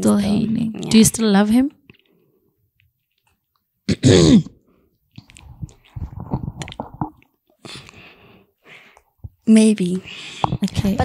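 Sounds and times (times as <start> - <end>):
soft breathing: 7.6 - 9.2.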